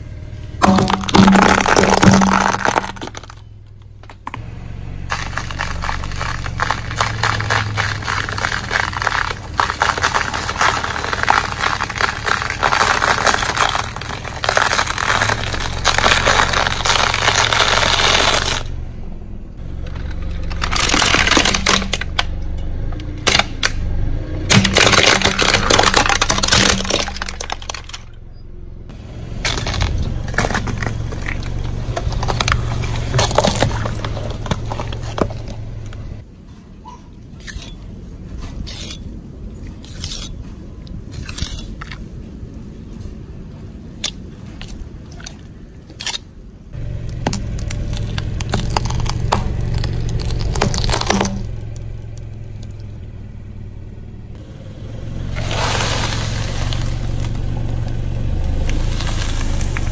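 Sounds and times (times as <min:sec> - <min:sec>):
car engine running: 0:00.0 - 0:36.3, 0:46.7 - 0:59.9
tyre crushing objects: 0:00.6 - 0:18.7, 0:19.9 - 0:22.2, 0:24.5 - 0:28.0, 0:29.3 - 0:36.2, 0:46.8 - 0:52.7.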